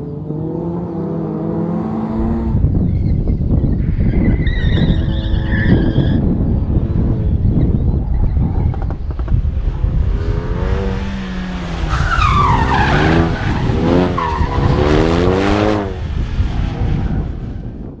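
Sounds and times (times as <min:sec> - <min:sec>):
car engine revving: 0:00.0 - 0:02.8, 0:08.7 - 0:16.8.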